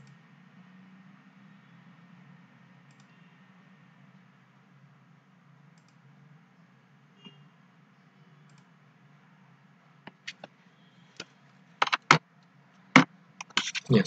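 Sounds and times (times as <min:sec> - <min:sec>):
faint low hum: 0:00.0 - 0:14.0
computer mouse clicks: 0:02.9 - 0:03.2, 0:05.8 - 0:06.0, 0:08.4 - 0:08.7, 0:10.1 - 0:10.5, 0:11.2 - 0:12.2, 0:13.0 - 0:13.9.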